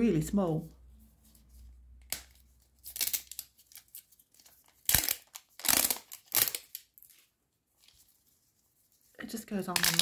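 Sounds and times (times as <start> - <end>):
plastic wrapping tearing: 2.1 - 7.3, 9.7 - 10.0.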